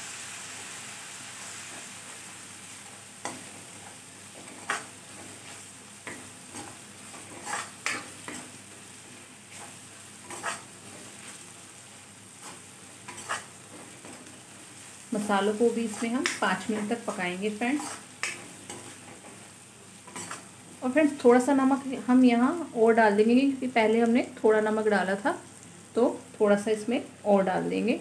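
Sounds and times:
spices sizzling in oil: 0:00.0 - 0:28.0
ladle scraping and clicking on pan: 0:06.1 - 0:08.5, 0:10.2 - 0:10.7, 0:12.4 - 0:14.2, 0:17.8 - 0:19.4, 0:20.1 - 0:20.5.

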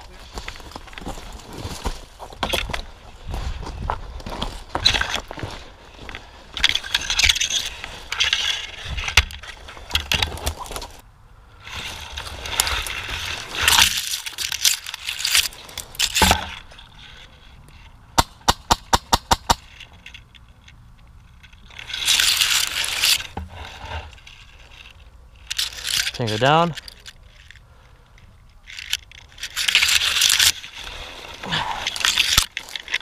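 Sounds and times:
footsteps crunching snow: 0:00.0 - 0:11.0
rustling through pine branches: 0:00.0 - 0:18.1, 0:21.3 - 0:33.0
sharp cracks: 0:18.1 - 0:20.1.

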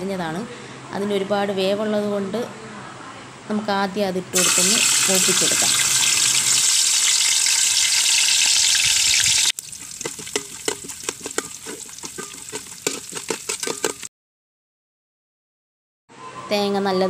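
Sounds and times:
coconut sizzling in hot oil: 0:04.4 - 0:14.1
ladle stirring in metal pot: 0:04.4 - 0:14.1.

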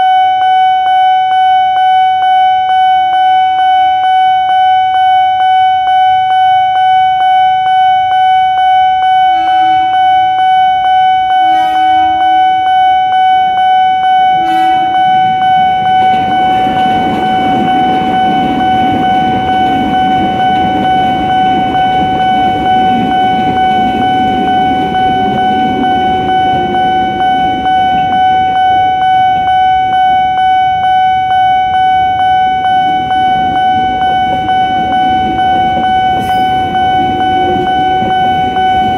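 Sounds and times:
level-crossing alarm bell ringing: 0:00.0 - 0:38.9
train horn blasts: 0:09.2 - 0:10.2, 0:11.3 - 0:12.6, 0:14.3 - 0:18.0
electric train rumbling past: 0:14.3 - 0:38.9.

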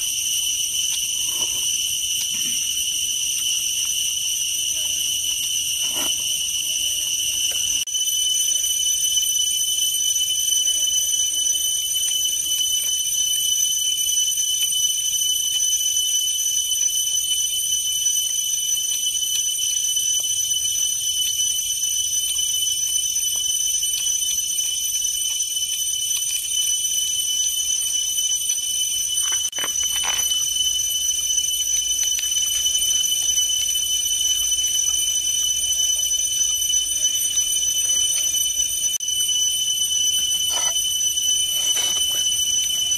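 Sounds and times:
insect chorus drone: 0:00.0 - 0:09.6.

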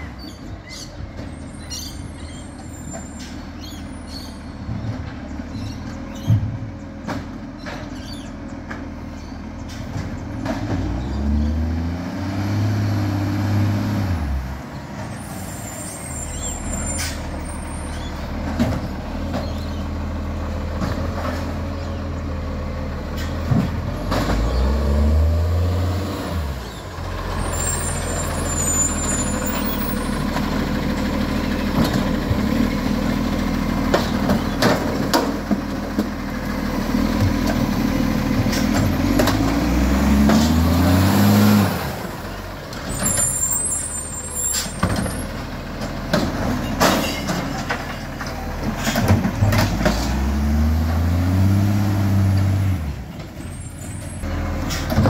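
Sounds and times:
garbage truck diesel engine revving: 0:09.8 - 0:55.0.

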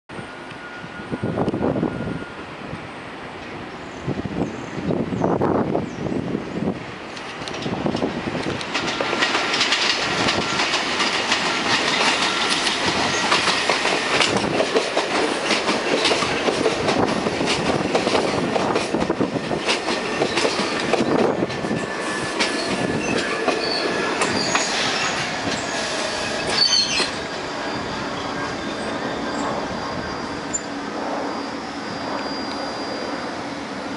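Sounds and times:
subway train rolling in: 0:00.1 - 0:33.9
wheels clattering over rail joints: 0:07.5 - 0:27.2
brakes squealing: 0:21.7 - 0:33.9.

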